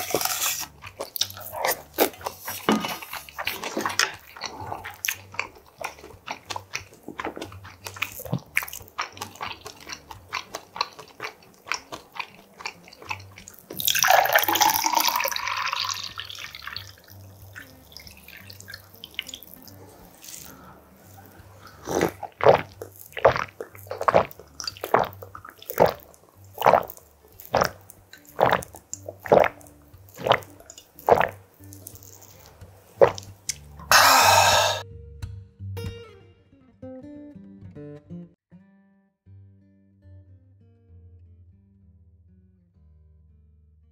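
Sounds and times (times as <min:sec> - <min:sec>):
chewing: 0:00.0 - 0:34.8
loud gulps: 0:01.2 - 0:16.9, 0:19.8 - 0:31.4, 0:33.0 - 0:34.8
drink pouring into a glass: 0:13.7 - 0:19.6.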